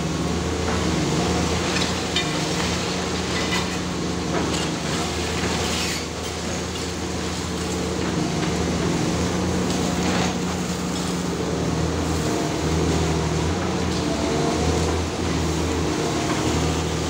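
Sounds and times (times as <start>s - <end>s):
diesel engine drone: 7.1s - 17.0s.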